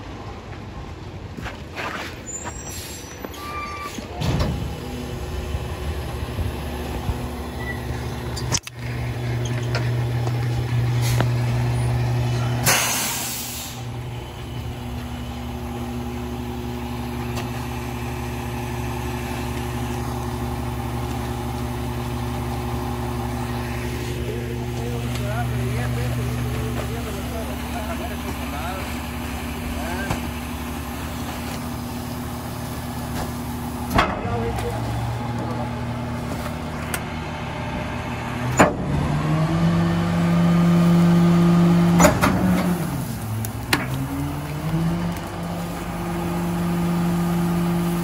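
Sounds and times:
diesel truck engine: 0.0 - 48.0
air brakes hissing: 2.3 - 4.2, 12.4 - 13.9.

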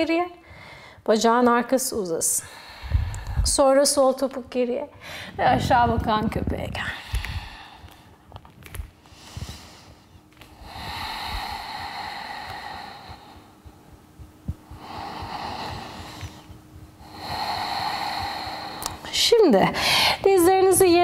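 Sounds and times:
woman breathing slowly: 0.4 - 1.1, 2.3 - 3.6, 4.9 - 5.4, 6.8 - 20.3.

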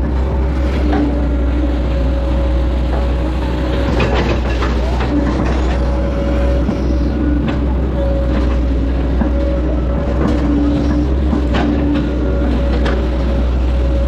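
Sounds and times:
excavator engine whining: 0.0 - 14.0.

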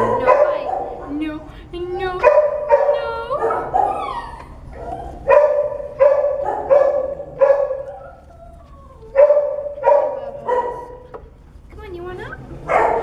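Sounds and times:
puppy howling and whining: 2.0 - 11.1.

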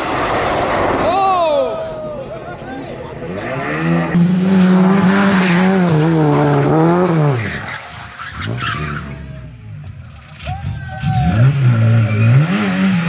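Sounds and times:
tyres skidding: 0.0 - 13.0
rally car engine revving: 2.8 - 13.0.

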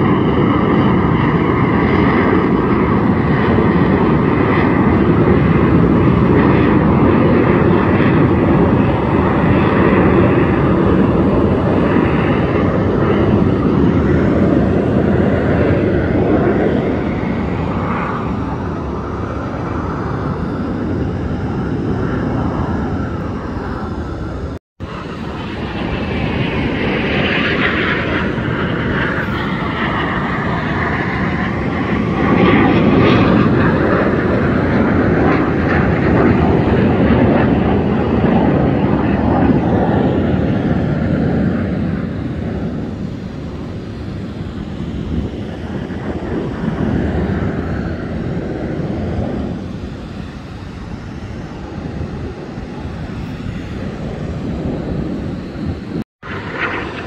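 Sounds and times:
jet aircraft flying past: 0.0 - 57.0.

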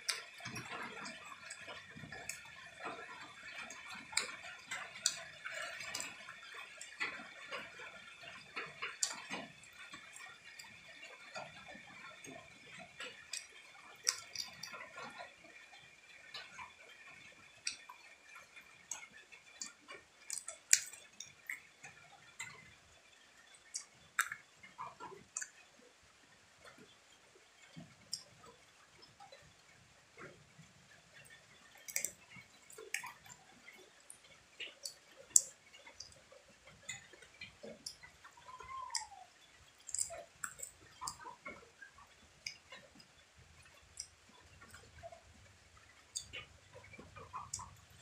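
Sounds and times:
person chewing and gnawing: 0.0 - 15.4, 16.2 - 22.6, 23.6 - 25.6, 31.2 - 45.4.

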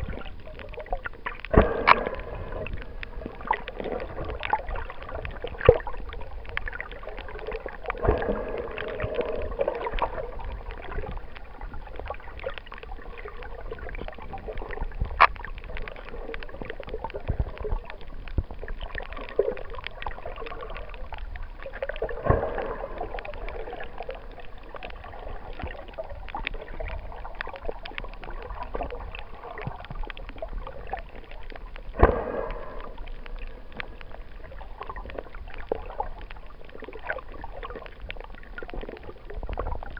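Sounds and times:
underwater clicks: 0.0 - 39.9
gurgling: 1.3 - 11.2
underwater watery hiss: 1.5 - 5.9, 7.1 - 11.1, 31.9 - 34.9.

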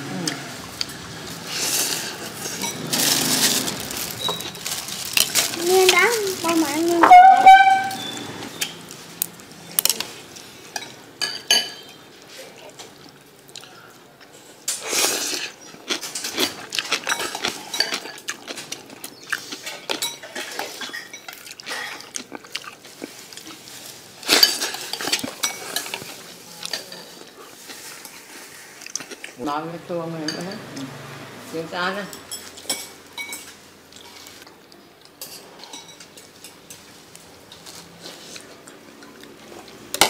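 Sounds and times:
utensils clinking against ceramic bowl: 2.4 - 8.8, 10.7 - 12.1, 16.0 - 18.6, 19.6 - 22.0, 32.1 - 34.2, 35.2 - 37.7.

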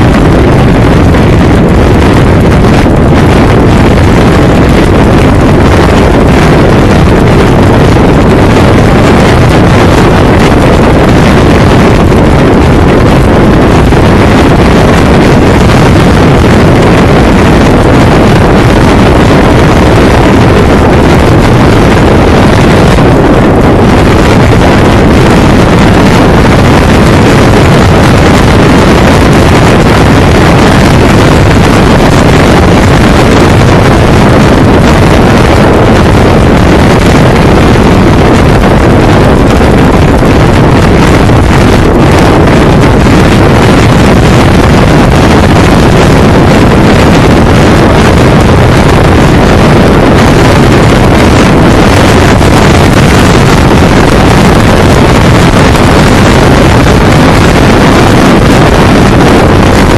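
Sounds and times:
road noise rumble: 0.0 - 47.1
wind buffeting microphone: 0.0 - 59.9.

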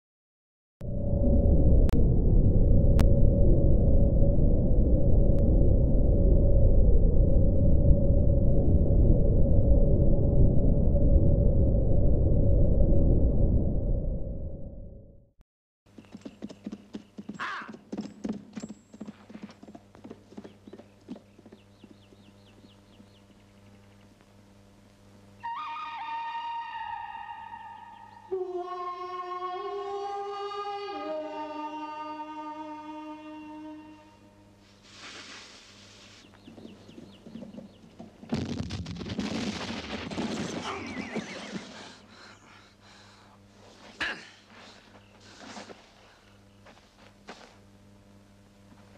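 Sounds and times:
low hum: 0.8 - 15.4, 21.0 - 35.0, 35.7 - 48.9
horse hooves clip-clopping: 15.9 - 23.2, 36.5 - 38.3
rumbling and crackling debris: 38.2 - 41.8
cannon explosion: 38.3 - 40.7.

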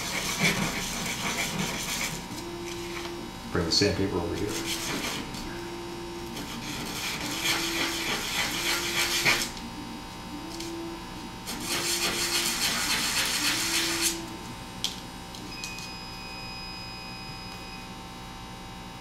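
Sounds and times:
wood rasping on sandpaper: 0.0 - 2.2, 4.5 - 5.3, 6.4 - 9.5, 11.5 - 14.2.

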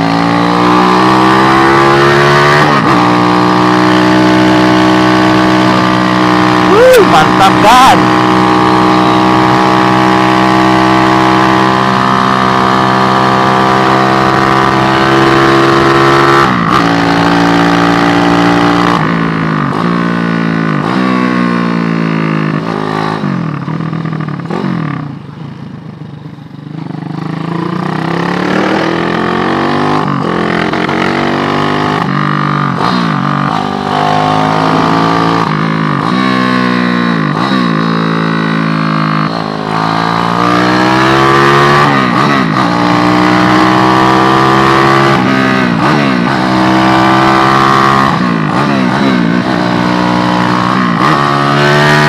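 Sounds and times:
motorcycle engine revving: 0.0 - 52.0.

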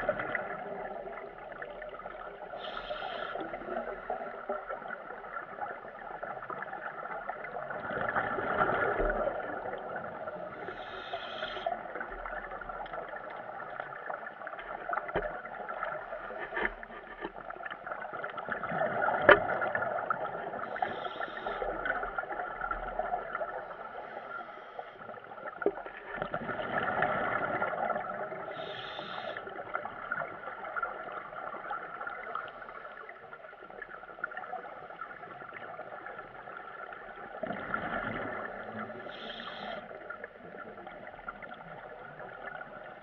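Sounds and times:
muffled underwater rush: 0.0 - 43.0
underwater clicks: 18.2 - 19.8.

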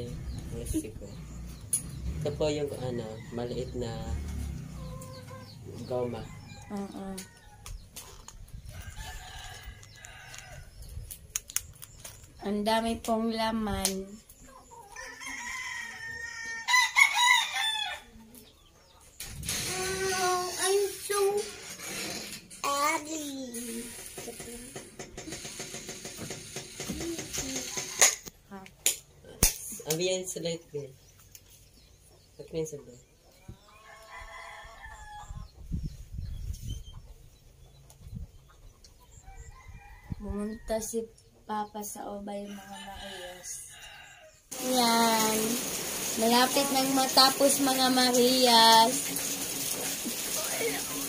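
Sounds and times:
rooster crowing: 8.8 - 10.7, 14.9 - 18.2, 42.5 - 44.5.

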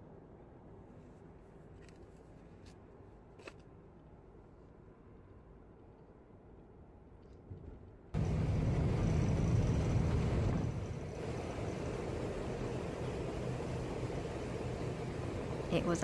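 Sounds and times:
ferry engines rumbling: 8.2 - 16.0.

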